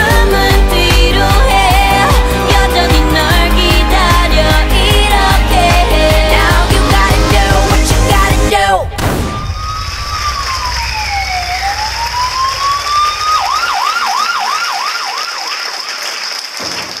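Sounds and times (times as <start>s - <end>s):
dance music: 0.0s - 9.0s
steady high tone: 5.9s - 14.2s
siren wailing and yelping: 9.3s - 15.8s.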